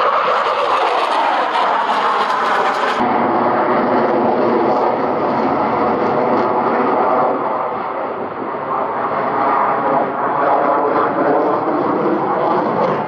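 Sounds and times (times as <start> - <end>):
jet engine rushing noise: 0.0 - 13.0.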